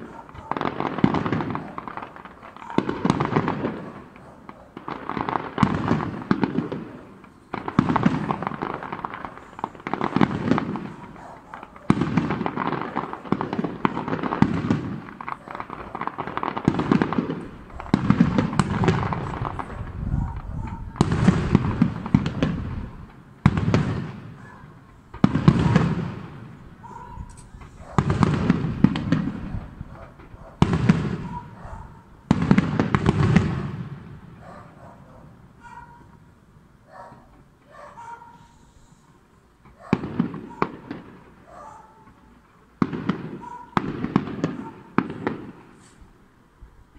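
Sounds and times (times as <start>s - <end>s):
fireworks bursting: 0.0s - 46.8s.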